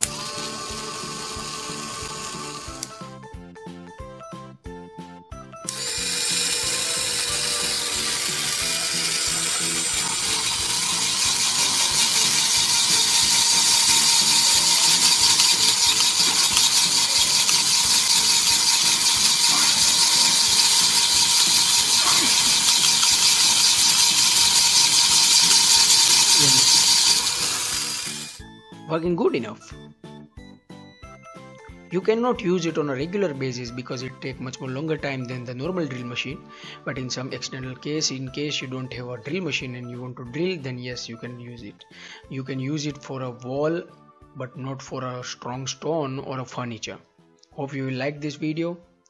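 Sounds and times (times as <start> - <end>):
drill bit grinding into plaster: 0.0 - 2.9, 5.7 - 28.4
drill motor whine: 0.0 - 3.0, 5.6 - 28.5.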